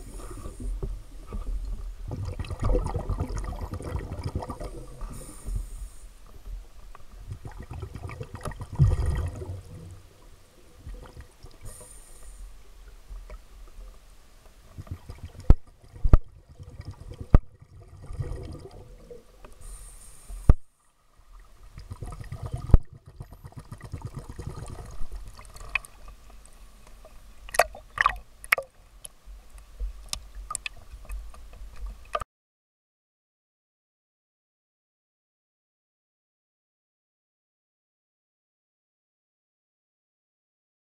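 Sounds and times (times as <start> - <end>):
underwater rumbling and gurgling: 0.0 - 32.2
regulator bubbles: 2.1 - 5.3, 7.3 - 10.1, 14.8 - 19.4, 21.7 - 25.8.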